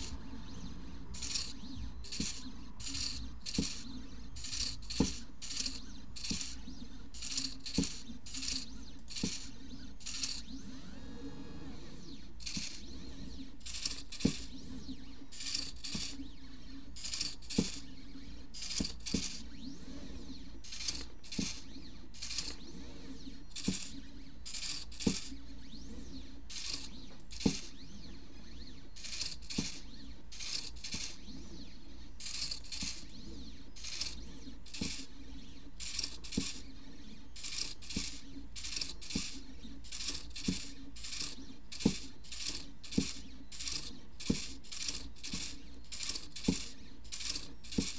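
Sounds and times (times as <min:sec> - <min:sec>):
low motor hum: 0:00.0 - 0:47.1
stepper motors buzzing: 0:00.0 - 0:47.9
sharp clicks: 0:01.2 - 0:06.6.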